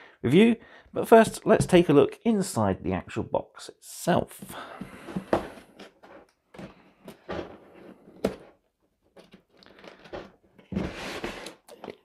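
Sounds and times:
cardboard box rustling and scraping: 7.0s - 8.6s, 9.2s - 11.7s.

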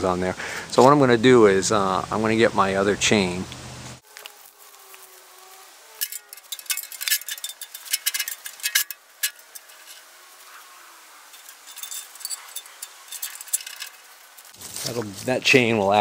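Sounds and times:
steel chain clinking and rattling: 6.0s - 10.6s, 11.2s - 14.6s.

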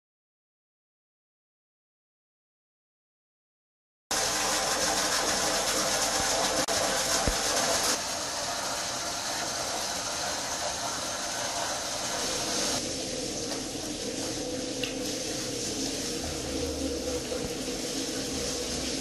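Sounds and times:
water pouring into metal tub: 4.1s - 19.0s.

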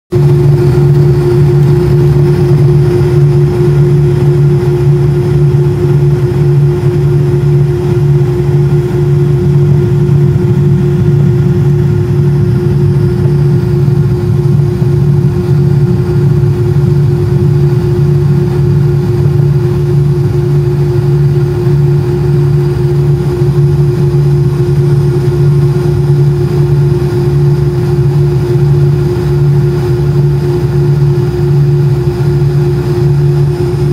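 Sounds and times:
aircraft engines idling: 0.1s - 33.9s.

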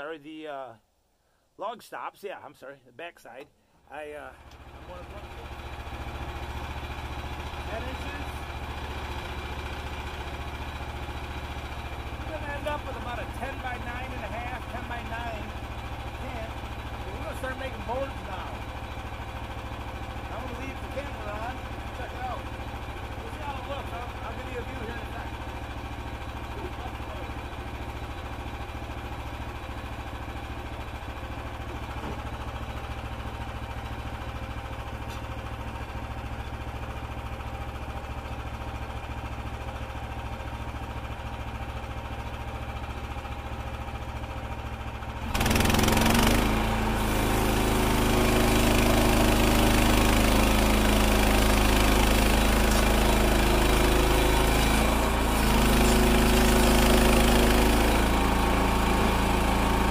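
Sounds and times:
small gasoline engine idling: 4.3s - 59.9s
band saw blade cutting wood: 45.4s - 59.9s.

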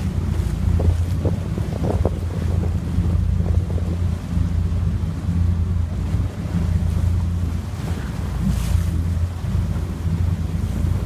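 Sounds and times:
water splashing against hull: 0.0s - 11.0s
wind buffeting microphone: 0.0s - 11.0s.

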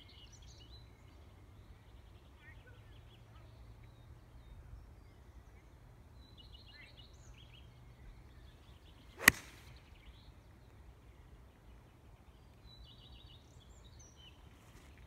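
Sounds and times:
golf club striking ball: 9.2s - 9.7s
golf club swish: 9.2s - 9.8s.

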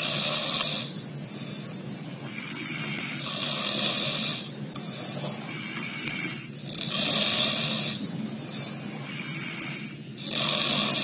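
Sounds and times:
man snoring through nose: 0.0s - 1.0s, 2.3s - 4.6s, 5.5s - 11.0s
steady low hum: 0.0s - 11.0s.

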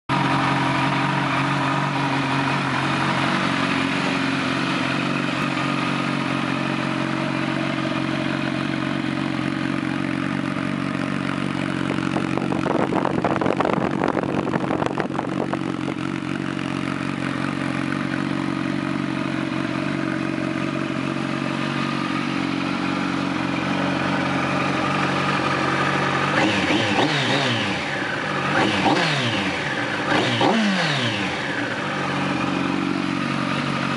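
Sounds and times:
motorcycle engine idling: 0.1s - 33.9s
motorcycle engine revving: 0.1s - 33.9s.

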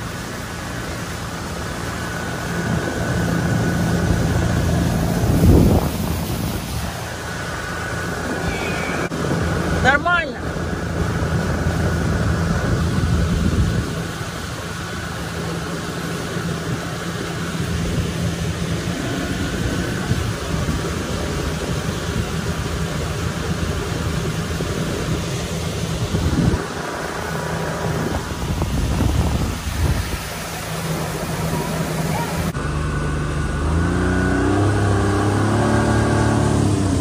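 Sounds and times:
rushing hiss: 0.0s - 9.1s
boat motor running: 0.0s - 37.0s.

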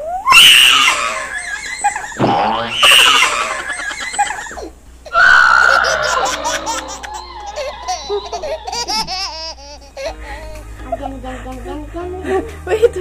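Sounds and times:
young boy laughing: 0.9s - 10.7s.

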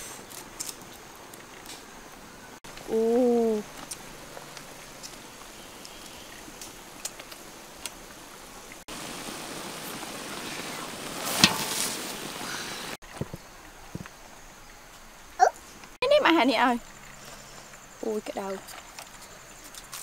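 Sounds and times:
cabbage sizzling in a wok: 8.9s - 13.0s
metal utensil clanking on pan: 11.4s - 12.1s.

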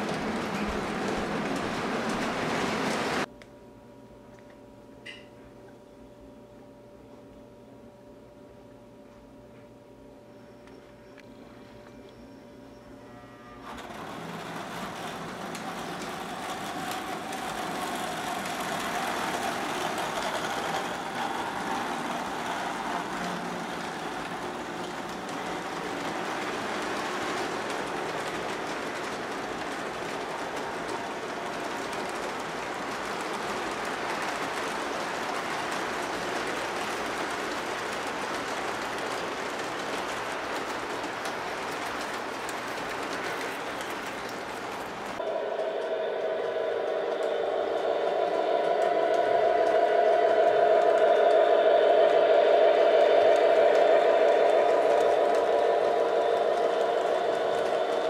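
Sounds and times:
model train wheels rumbling: 0.0s - 3.3s, 13.6s - 58.0s
humming tone: 45.2s - 58.0s.

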